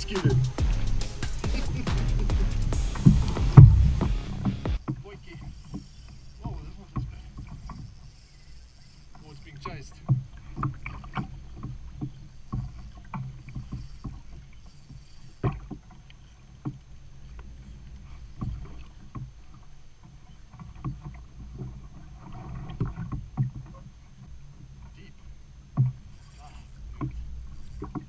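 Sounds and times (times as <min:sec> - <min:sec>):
waves slapping kayak hull: 0:00.0 - 0:28.0.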